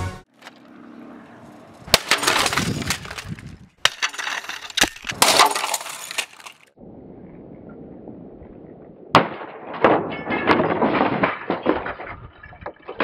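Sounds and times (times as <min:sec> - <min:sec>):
fragments clattering: 0:01.9 - 0:06.7, 0:09.7 - 0:13.0
scanner smashing on ground: 0:01.9 - 0:06.7, 0:09.2 - 0:13.0.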